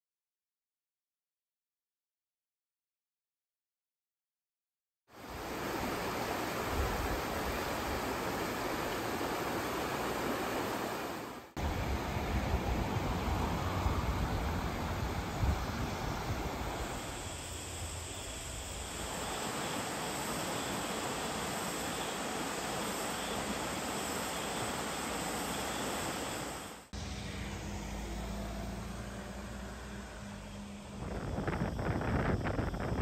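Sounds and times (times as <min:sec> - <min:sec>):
stream rushing over rocks: 0:05.2 - 0:12.6, 0:18.9 - 0:26.9
faint hum: 0:05.3 - 0:33.0
low steady rumble: 0:27.0 - 0:33.0.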